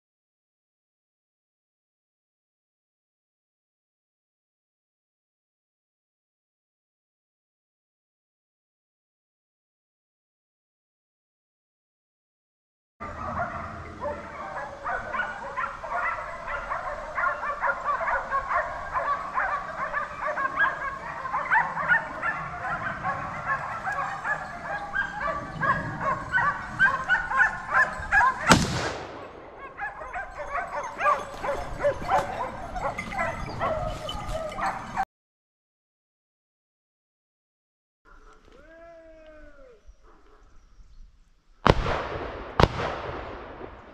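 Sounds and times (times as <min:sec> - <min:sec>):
hounds baying and yelping: 0:13.0 - 0:28.5, 0:29.4 - 0:35.0, 0:39.9 - 0:40.6
shotgun shot: 0:28.5 - 0:29.7, 0:41.7 - 0:43.9.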